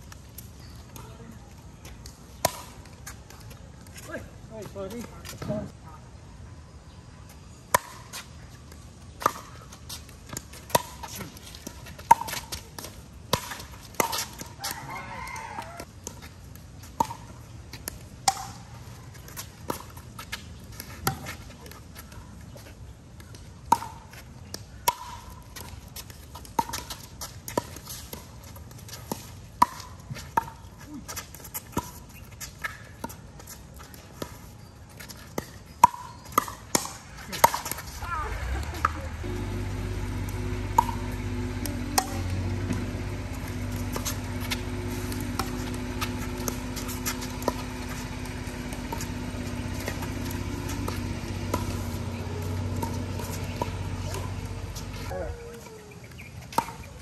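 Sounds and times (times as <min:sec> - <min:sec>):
rooster crowing: 0:14.6 - 0:15.9
paddles hitting plastic ball: 0:35.2 - 0:55.2.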